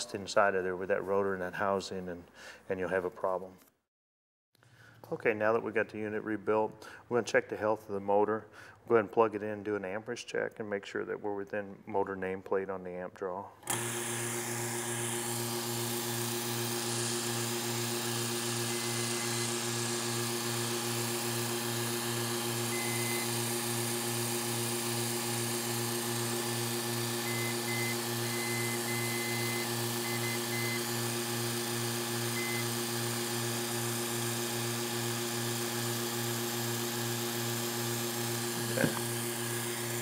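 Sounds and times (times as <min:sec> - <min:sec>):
compressor motor humming: 0:13.7 - 0:40.0.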